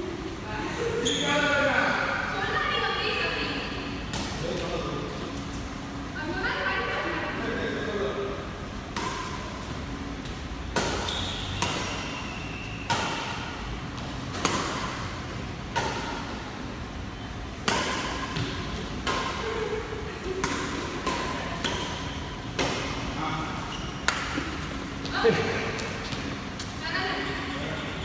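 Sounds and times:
badminton racket hits: 10.7 - 12.2, 12.9 - 13.6, 17.6 - 19.5.

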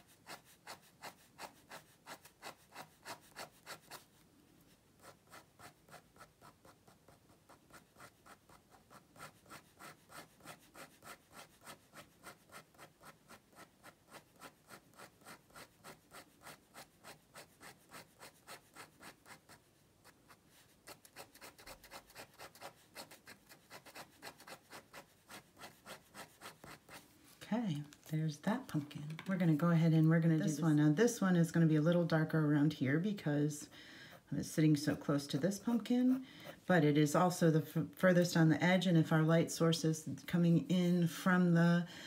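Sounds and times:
ink pen scratching on paper: 0.0 - 27.1.

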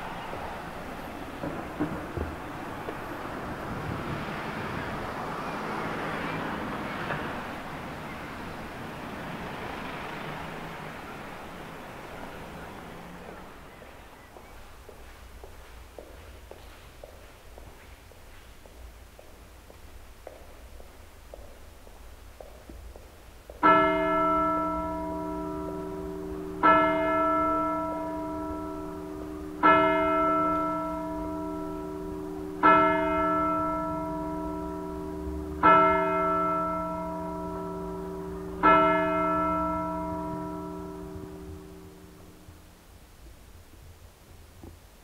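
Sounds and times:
church bell ringing: 0.0 - 3.9, 23.6 - 42.6.

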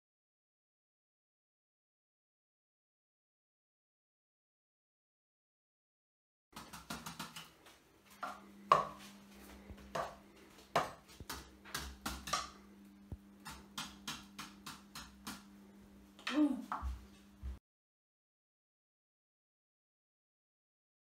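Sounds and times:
faint steady hum: 6.6 - 17.6
drumsticks hitting rubber pads: 9.8 - 15.5.

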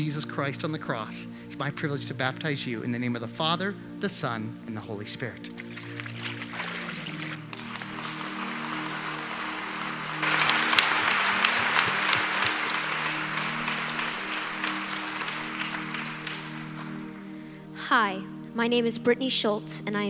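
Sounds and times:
soft background music: 0.0 - 20.0
congregation applauding: 5.6 - 17.7.

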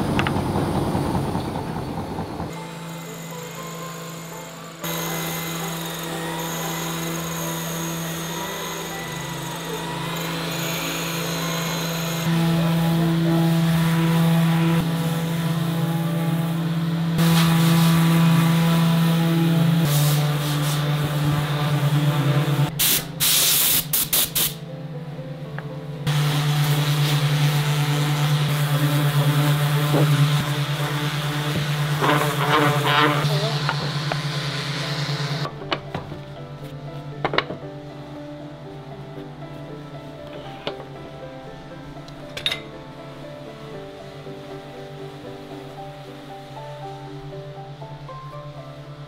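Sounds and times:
orbital sanders running: 0.0 - 22.8, 26.1 - 35.6
shop machinery running: 0.0 - 22.8, 26.0 - 36.4.

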